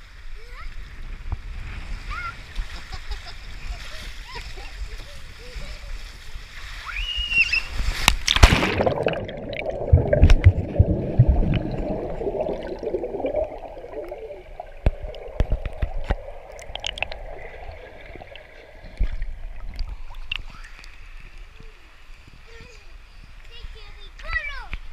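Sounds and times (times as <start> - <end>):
person splashing into pool: 7.9 - 20.4
underwater churning and bubbling: 8.2 - 21.4.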